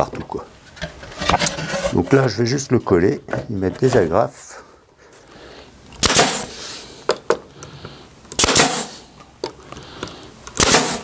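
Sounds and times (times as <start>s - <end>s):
staple gun shots: 6.0s - 6.5s, 8.4s - 8.9s, 10.6s - 11.0s.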